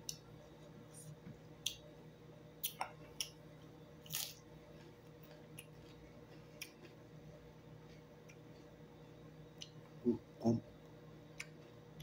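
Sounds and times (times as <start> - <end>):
quiet chewing: 2.6 - 8.8.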